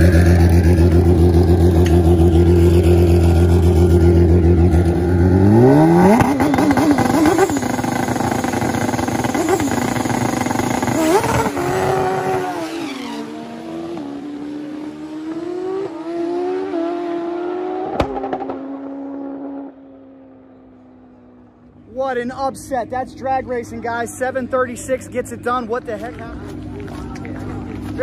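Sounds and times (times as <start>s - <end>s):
motorcycle engine revving: 0.0s - 20.4s.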